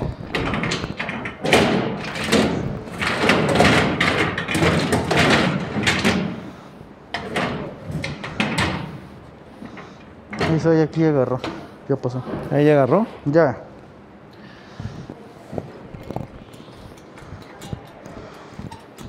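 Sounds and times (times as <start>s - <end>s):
metal jack clunking and scraping: 0.0s - 11.7s, 16.1s - 19.0s.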